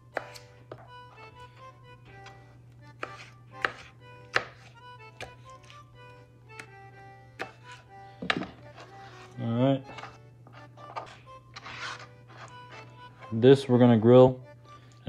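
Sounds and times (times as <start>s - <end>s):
background music: 0.0s - 15.0s
knife chopping on cutting board: 0.2s - 1.4s, 3.0s - 5.8s, 7.4s - 13.3s.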